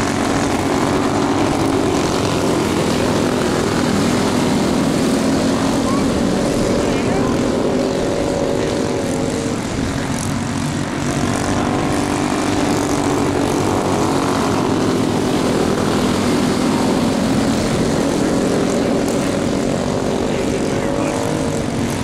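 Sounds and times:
snowmobile engines buzzing: 0.0 - 22.0.

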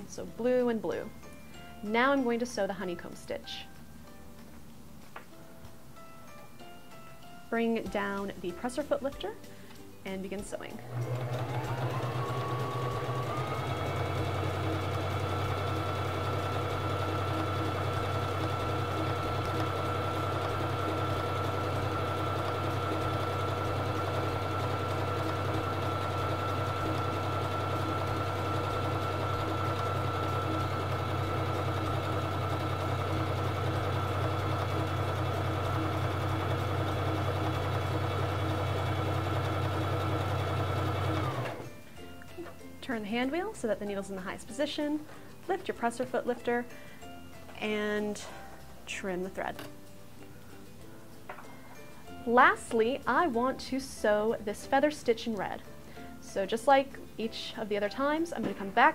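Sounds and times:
electric sewing machine running: 10.8 - 41.8.

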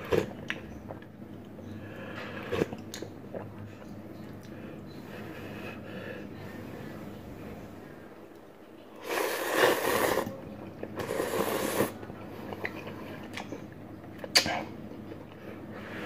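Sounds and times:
person slurping noodles: 9.0 - 10.3, 11.0 - 12.0.

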